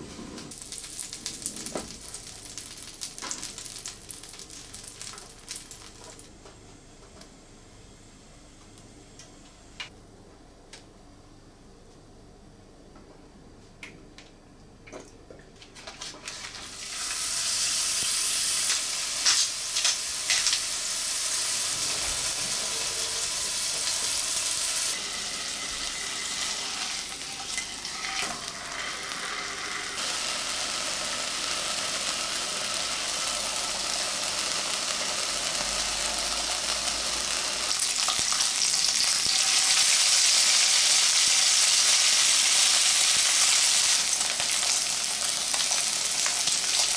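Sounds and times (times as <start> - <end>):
burger patty sizzling in pan: 0.5 - 6.3, 16.4 - 46.9.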